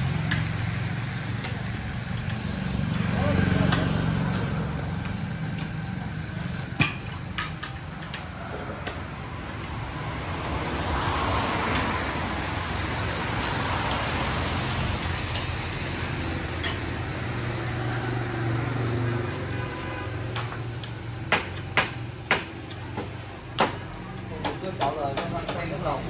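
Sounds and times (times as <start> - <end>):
traffic on wet street: 0.0 - 26.0
passing vehicle hiss: 8.6 - 20.3.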